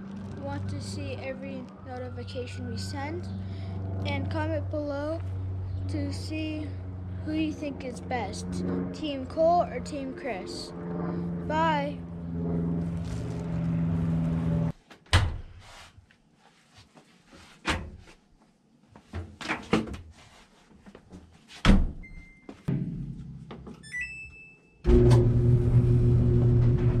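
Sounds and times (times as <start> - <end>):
dryer running hum: 11.5 - 14.7, 24.9 - 27.0.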